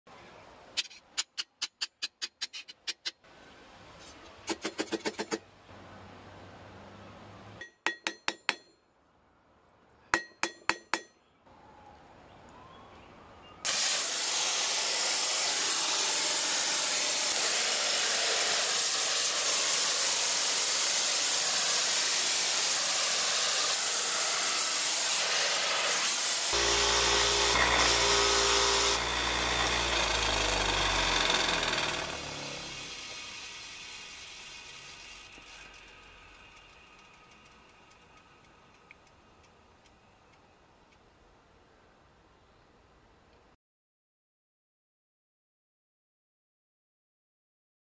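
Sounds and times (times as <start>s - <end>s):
hammer ringing on hot steel: 7.6s - 8.8s, 10.2s - 11.2s
loud steady hiss: 13.7s - 38.6s
bench grinder motor humming: 26.4s - 35.7s.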